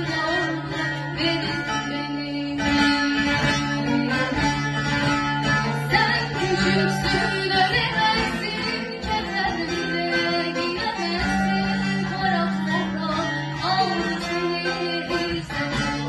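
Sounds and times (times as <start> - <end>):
amplified lute melody: 0.0 - 16.0
girl singing into a microphone: 0.0 - 16.0.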